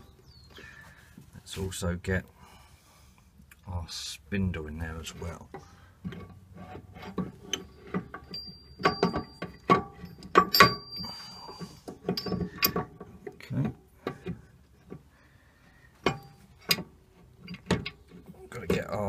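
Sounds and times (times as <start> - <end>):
metallic clinks and knocks: 6.0 - 15.0, 16.0 - 18.9.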